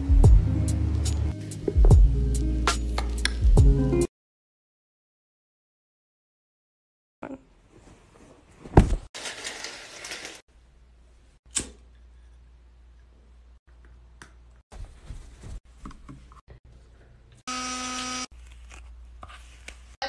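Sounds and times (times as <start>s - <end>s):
window blinds rustling: 9.2s - 10.4s
electric toothbrush buzzing: 17.5s - 18.3s.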